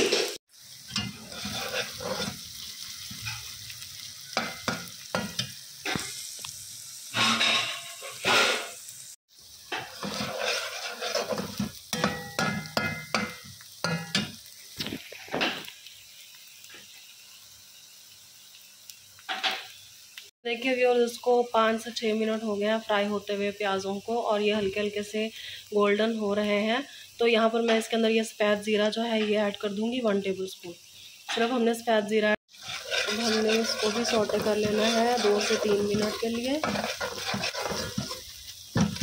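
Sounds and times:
spoon scraping metal pan: 0.0 - 3.5, 7.2 - 8.7, 9.7 - 14.3, 32.5 - 39.0
onions sizzling in oil: 0.0 - 39.0.

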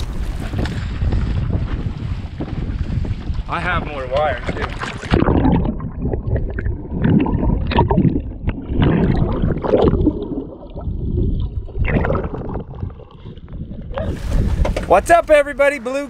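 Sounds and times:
low rumble: 0.0 - 14.7
muffled water sloshing underwater: 0.0 - 15.0.

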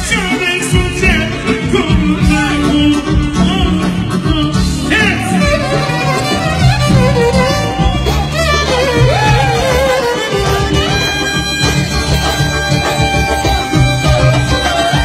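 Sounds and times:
man singing into a microphone: 0.0 - 6.5
folk band with violin: 0.0 - 15.0.

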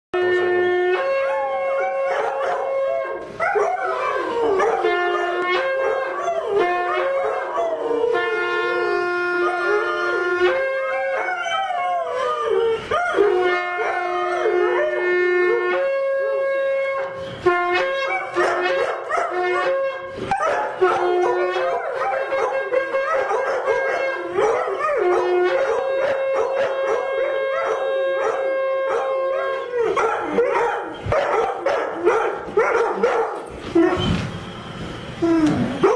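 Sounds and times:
horn playing long notes: 0.2 - 35.9
dogs howling: 1.0 - 16.0, 20.3 - 34.0
dogs yipping: 1.8 - 2.8, 3.4 - 8.1, 18.0 - 34.2.

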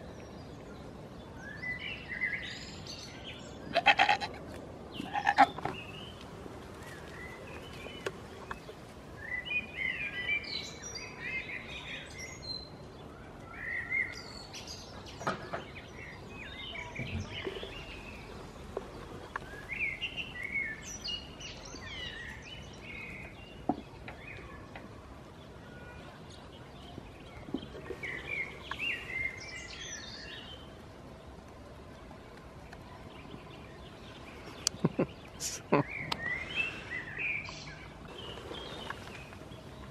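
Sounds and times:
outdoor background hiss: 0.0 - 39.9
songbirds chirping: 0.0 - 39.9.

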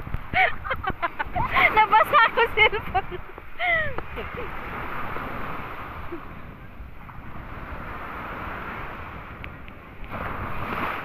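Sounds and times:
surf breaking in shallows: 0.0 - 11.0
wind rumbling on microphone: 0.0 - 11.0.

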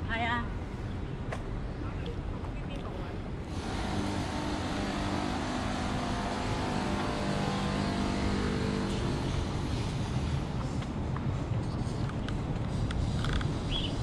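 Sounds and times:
vehicle engine humming: 2.0 - 14.0
steady broad hiss: 3.4 - 10.8.

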